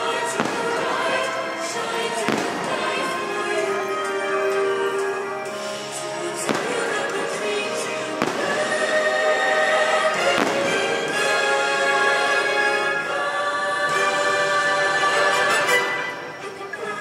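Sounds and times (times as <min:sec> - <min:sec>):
fireworks booming: 0:00.0 - 0:03.7, 0:06.4 - 0:11.6
loud show music: 0:00.0 - 0:17.0.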